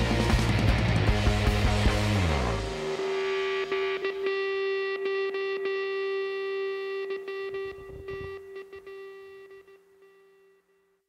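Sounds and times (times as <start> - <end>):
rock music: 0.0 - 8.5
distorted electric guitar note: 0.0 - 10.5.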